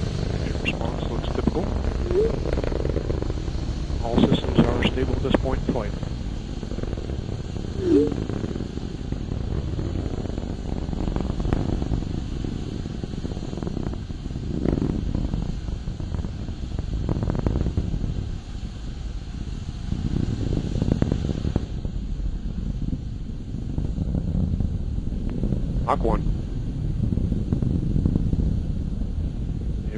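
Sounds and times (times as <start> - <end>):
rocket launch rumble: 0.0 - 29.9
short warbling blip: 2.0 - 2.4, 7.8 - 8.2.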